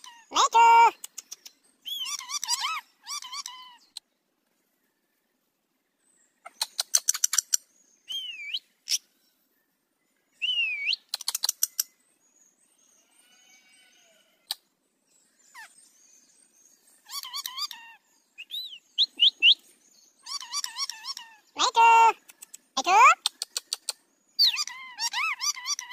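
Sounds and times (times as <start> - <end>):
parakeets squawking and whistling: 1.8 - 4.0, 17.0 - 19.6, 20.2 - 22.1, 22.8 - 25.9.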